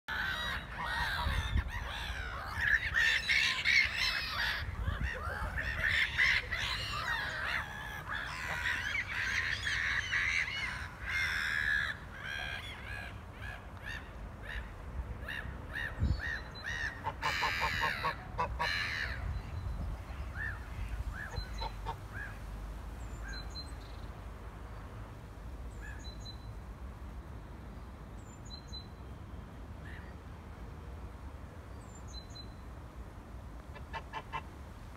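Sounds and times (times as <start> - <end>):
gulls calling: 0.1 - 19.5.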